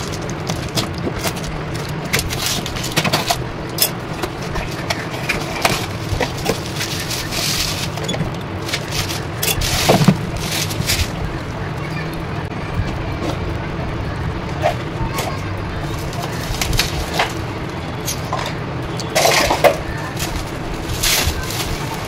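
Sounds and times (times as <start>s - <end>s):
bubble wrap crinkling: 0.0s - 12.3s, 15.4s - 18.2s, 19.8s - 22.0s
packing tape and cardboard crackling: 0.0s - 12.5s, 14.5s - 18.3s, 18.9s - 22.0s
steady low hum: 0.0s - 22.0s.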